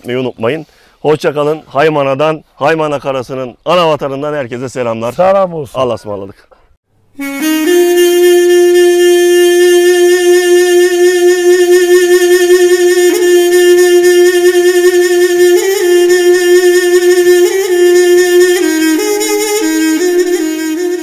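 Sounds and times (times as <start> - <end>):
wind instrument long note: 7.2 - 21.0.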